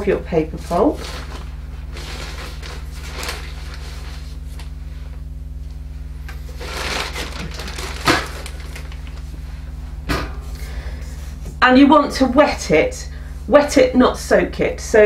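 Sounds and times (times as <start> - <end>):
low electrical hum: 0.0 - 15.0
paper pulp rustling in steel bowl: 0.4 - 4.8, 6.4 - 9.5
sharp knock: 10.1 - 10.6.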